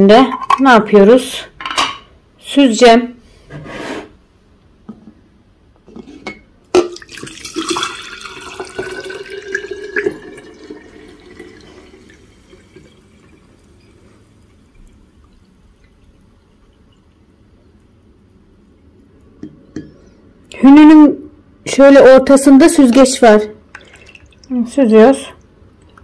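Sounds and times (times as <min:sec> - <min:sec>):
water trickling through funnel: 0:06.9 - 0:20.0, 0:22.7 - 0:26.0.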